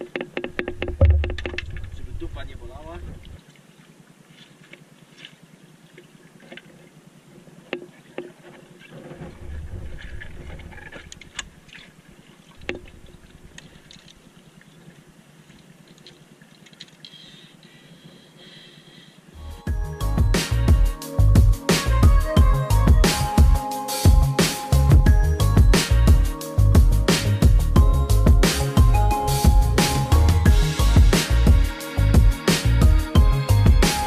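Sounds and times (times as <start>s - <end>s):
water lapping at rocks: 0.0s - 19.1s
small clicks and knocks of gear: 13.5s - 14.9s, 15.5s - 17.3s.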